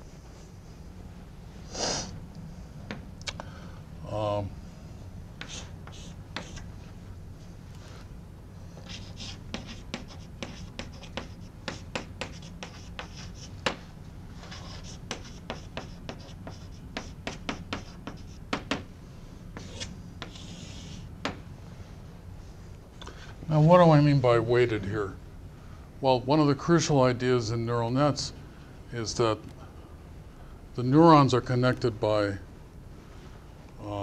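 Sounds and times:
low room hum: 0.0 - 34.0
chalk tapping on blackboard: 5.4 - 6.7, 8.8 - 13.8, 14.4 - 18.9, 19.6 - 21.4
chalk scratching strokes: 5.4 - 6.8, 8.8 - 13.8, 14.4 - 18.8, 19.6 - 21.1.

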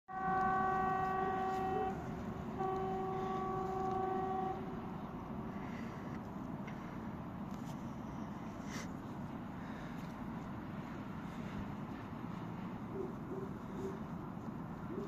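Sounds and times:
locomotive horn blasts: 0.1 - 5.7.

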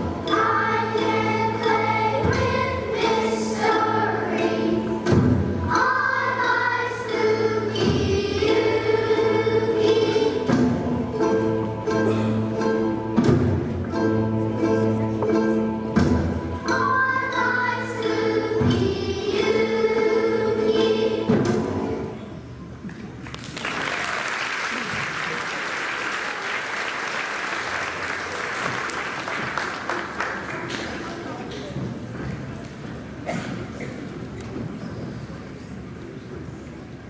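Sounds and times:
children's choir singing: 0.0 - 22.3
audience applauding: 23.2 - 31.5.

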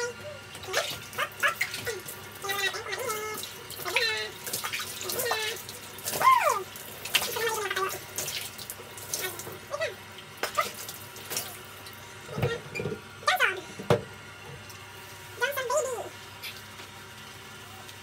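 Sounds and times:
water splashing and pouring: 0.8 - 9.6.

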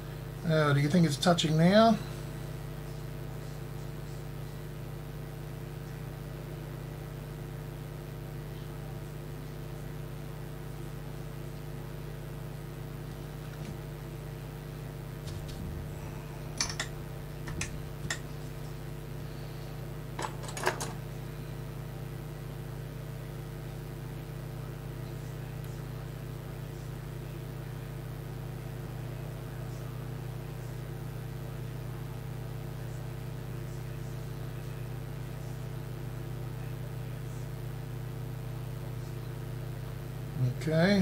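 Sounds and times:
machine hum: 12.3 - 22.8
small tools clicking and tapping: 16.6 - 16.9.

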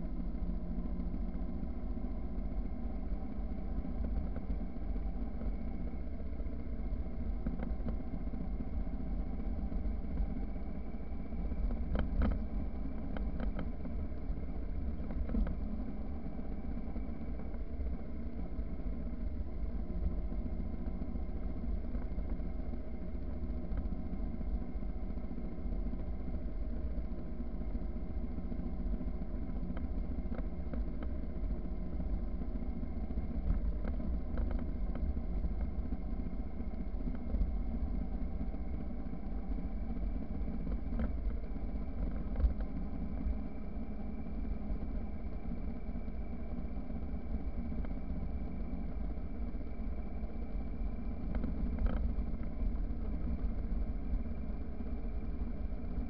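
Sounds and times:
road and wind rumble: 0.0 - 56.0.

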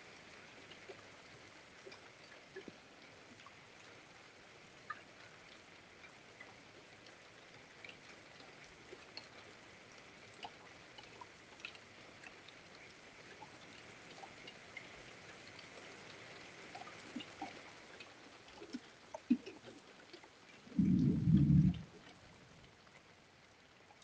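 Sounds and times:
light rain hiss: 0.0 - 24.0
raindrops ticking: 1.8 - 3.9, 16.4 - 22.8.

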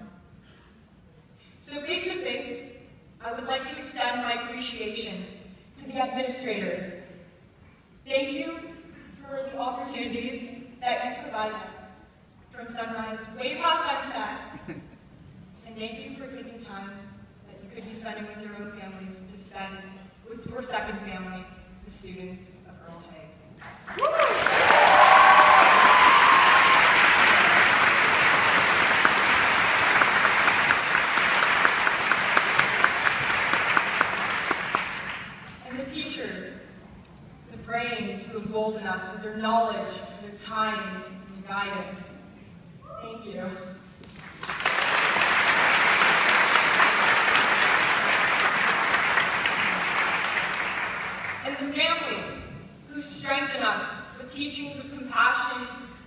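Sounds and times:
audience applauding: 23.6 - 35.6, 44.2 - 51.4
people cheering: 23.9 - 35.0.

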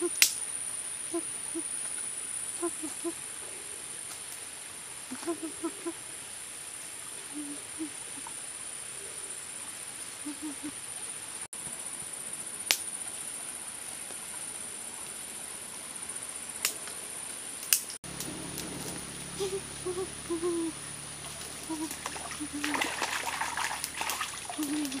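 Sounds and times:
high-pitched insect drone: 0.0 - 0.2, 18.1 - 23.7
short low calls: 0.0 - 0.2, 1.1 - 1.7, 2.6 - 3.2, 5.1 - 6.0, 7.3 - 8.3, 10.2 - 10.8, 18.1 - 23.0.

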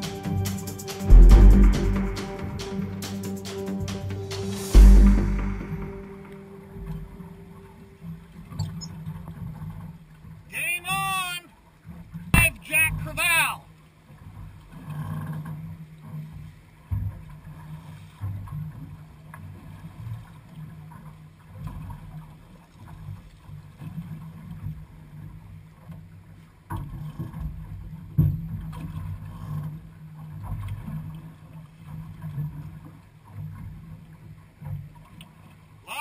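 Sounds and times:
water slapping against boat hull: 12.2 - 13.5, 26.7 - 29.7.

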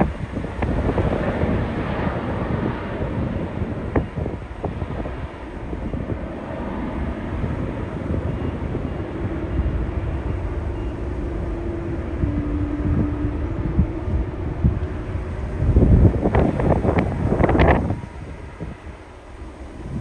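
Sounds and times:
distant jet engines: 0.0 - 20.0
low steady hum: 0.0 - 20.0
wind buffeting microphone: 0.0 - 20.0.

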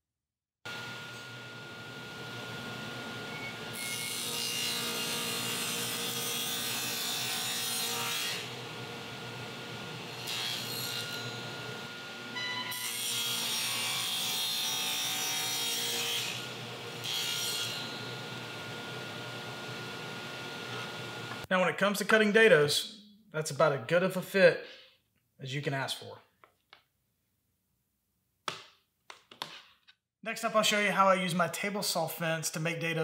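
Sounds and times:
table saw cutting wood: 0.7 - 21.5.

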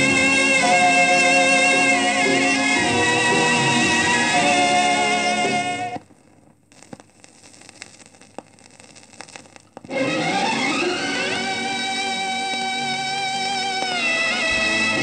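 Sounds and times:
film song on vinyl record: 0.0 - 15.0
stylus crackle and clicks: 5.9 - 14.6.

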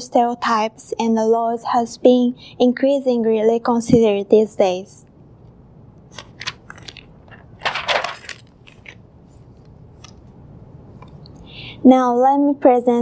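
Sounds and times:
paper rustling: 6.1 - 10.2.

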